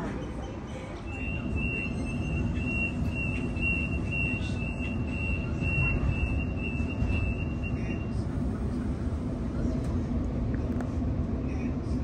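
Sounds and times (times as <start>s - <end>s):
train door warning beeps: 0.0s - 8.2s
low rumble of stationary train: 0.0s - 12.0s.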